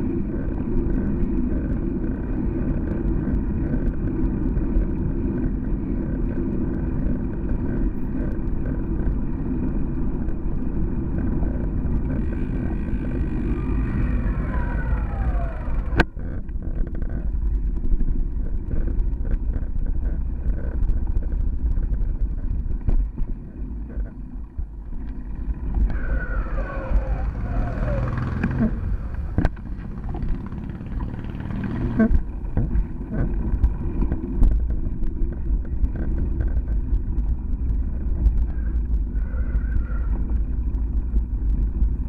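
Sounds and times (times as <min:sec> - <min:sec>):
road rumble: 0:00.0 - 0:42.0
wind buffeting: 0:00.0 - 0:42.0
whine sliding down in pitch: 0:25.7 - 0:28.9.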